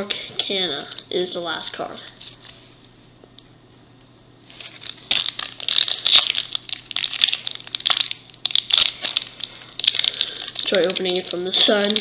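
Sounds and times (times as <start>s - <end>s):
wrapper crinkling: 4.5s - 12.0s.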